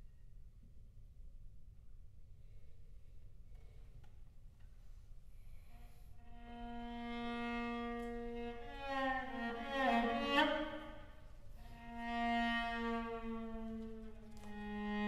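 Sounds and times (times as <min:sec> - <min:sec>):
string quartet bowed notes: 0:06.3 - 0:15.0.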